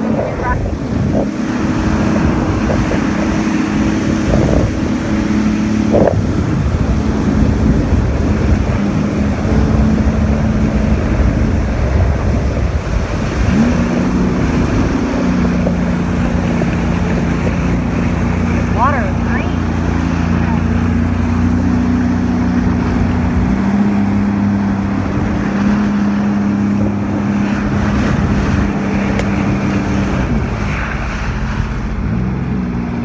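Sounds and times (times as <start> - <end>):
jet ski engine running: 0.0 - 33.0
wind on microphone: 0.0 - 33.0.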